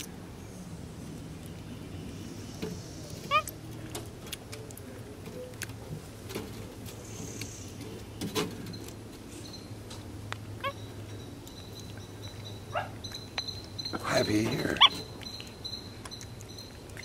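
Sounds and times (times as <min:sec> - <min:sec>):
monkey squeaking: 0:03.3 - 0:03.6, 0:10.6 - 0:17.0.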